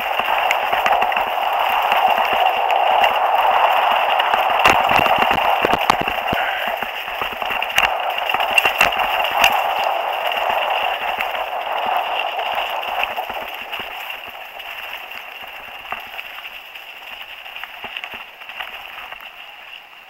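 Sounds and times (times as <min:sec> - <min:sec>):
rushing noise: 0:00.0 - 0:18.4.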